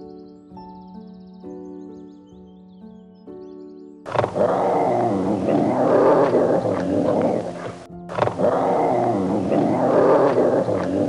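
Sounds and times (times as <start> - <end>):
background music: 0.0 - 11.0
growling animal call: 4.1 - 11.0.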